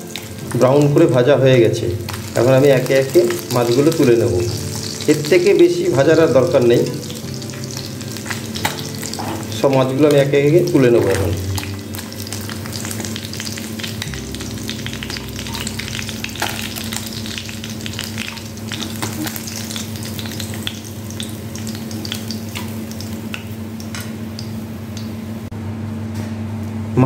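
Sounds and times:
fish sizzling in oil: 0.0 - 25.5.

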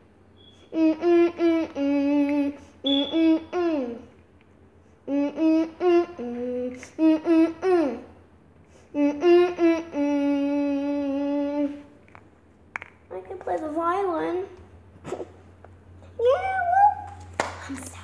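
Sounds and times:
girl humming a slow tune: 0.5 - 4.1, 5.0 - 8.2, 8.8 - 12.0.

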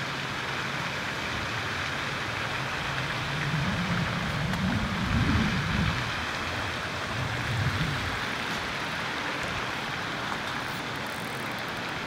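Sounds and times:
rushing outdoor background noise: 0.0 - 12.0
low rumbles: 2.3 - 8.6.

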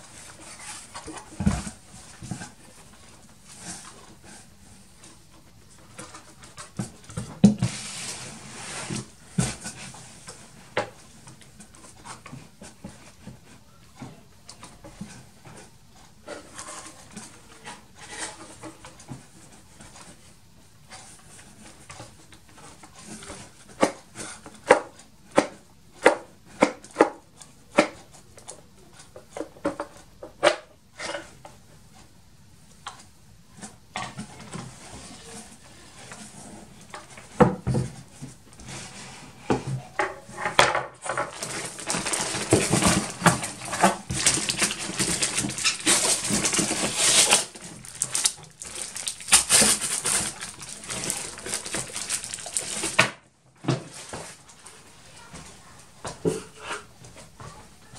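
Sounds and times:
plastic bags crinkling: 41.0 - 53.2.

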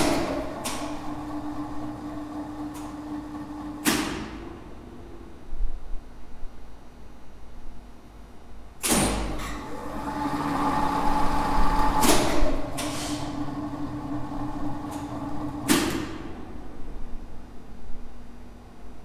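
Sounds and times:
lift motor humming: 0.0 - 5.6, 9.3 - 17.8.

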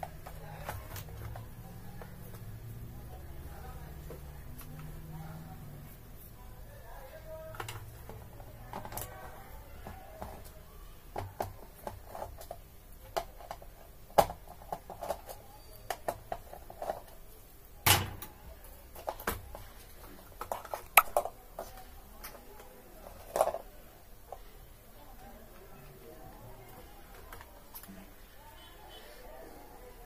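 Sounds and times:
clicks and taps of handled circuit boards: 0.0 - 2.5.

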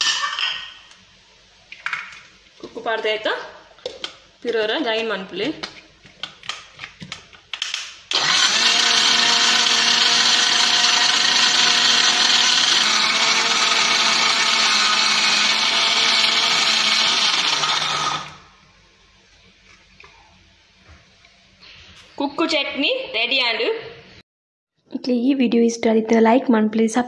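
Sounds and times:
mixer grinder running: 8.1 - 18.5.

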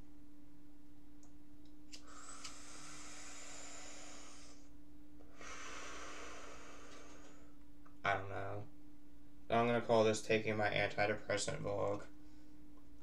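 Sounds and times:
low electrical hum: 0.0 - 13.0
man breathing heavily: 2.0 - 7.6.

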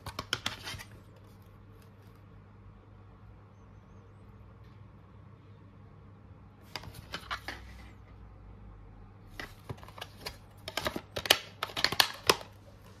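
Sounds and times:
plastic case clicks and rattles: 9.4 - 12.6.

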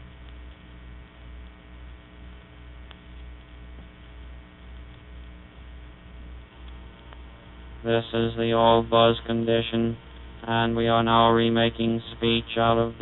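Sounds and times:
electrical mains hum: 0.0 - 13.0
faint click: 2.8 - 4.0.

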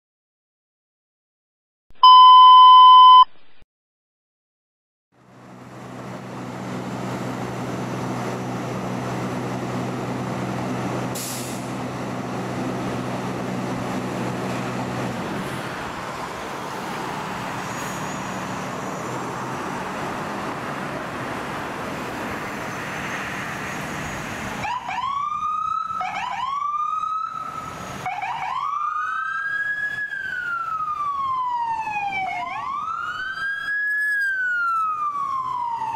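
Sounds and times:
electronic beep: 2.0 - 3.4
low engine hum: 5.2 - 17.5
traffic noise: 5.2 - 35.9
ambulance siren: 24.6 - 35.9.

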